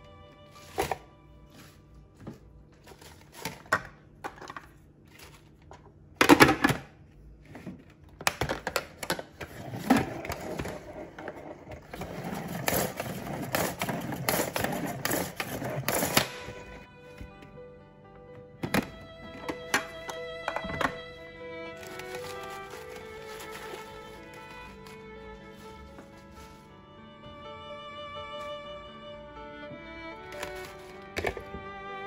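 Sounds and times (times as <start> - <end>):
plastic lid clatter: 18.6 - 21.0, 30.3 - 31.6.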